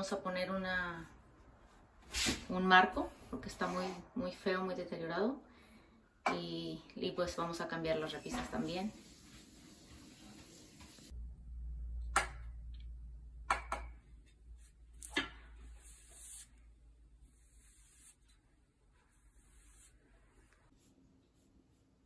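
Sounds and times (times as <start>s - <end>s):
paintbrush swishing on panel: 8.0s - 11.1s, 14.6s - 21.9s.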